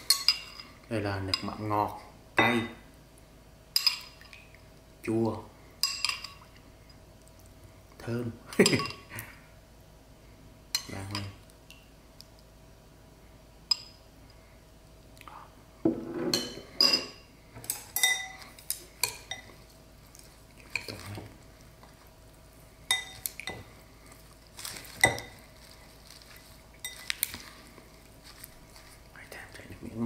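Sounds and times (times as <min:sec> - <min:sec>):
spoon clinking on ceramic bowl: 0:16.3 - 0:17.2, 0:18.0 - 0:18.4, 0:22.9 - 0:23.6.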